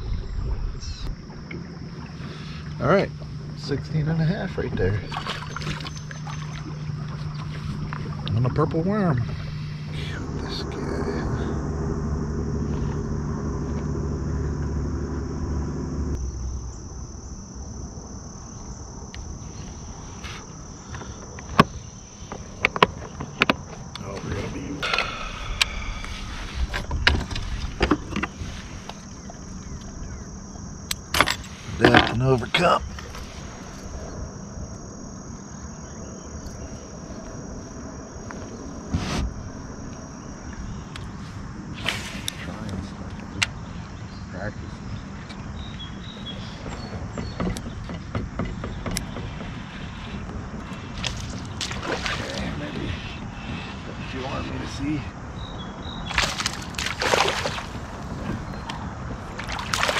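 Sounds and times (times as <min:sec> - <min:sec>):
motor humming: 0:00.0 - 0:41.2
insects buzzing: 0:00.0 - 0:59.9
low outdoor rumble: 0:00.0 - 0:59.9.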